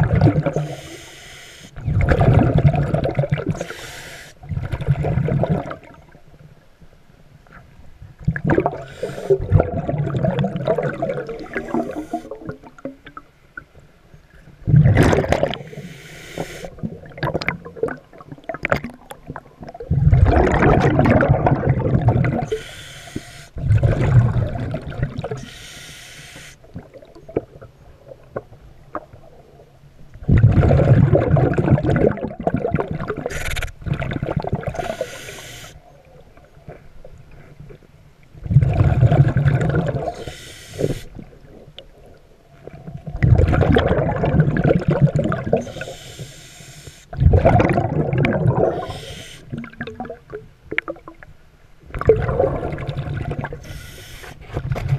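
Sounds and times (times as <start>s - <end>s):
bubbling exhalations underwater: 0.0s - 0.8s, 1.8s - 3.7s, 4.4s - 6.0s, 8.3s - 13.2s, 14.6s - 15.8s, 16.7s - 22.7s, 23.6s - 25.5s, 30.2s - 35.1s, 38.4s - 41.7s, 42.7s - 45.9s, 47.1s - 51.2s, 51.9s - 53.8s
hissing regulator inhalations: 0.6s - 1.8s, 3.6s - 4.4s, 15.7s - 16.7s, 22.5s - 23.6s, 25.4s - 26.6s, 34.8s - 35.8s, 40.2s - 41.1s, 45.7s - 47.1s, 48.7s - 49.5s, 53.6s - 54.4s.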